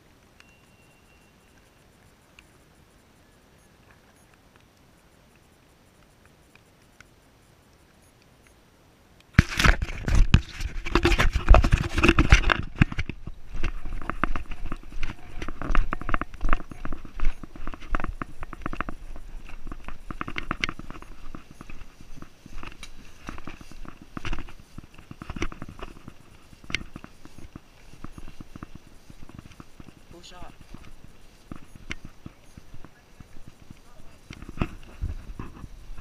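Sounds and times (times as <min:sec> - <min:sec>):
faint ticks: 0:00.0 - 0:36.0
camera handling noise: 0:09.4 - 0:29.9
running footsteps through grass: 0:09.4 - 0:36.0.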